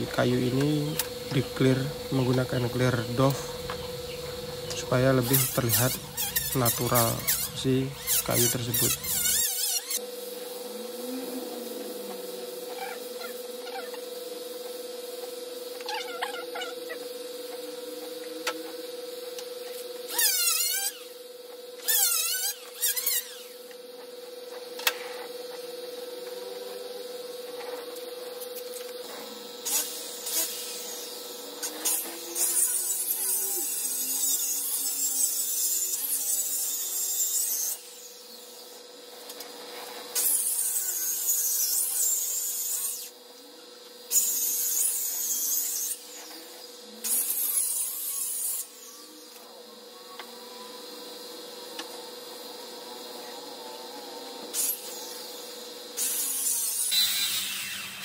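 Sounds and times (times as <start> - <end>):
steady hum: 0.0 - 32.4.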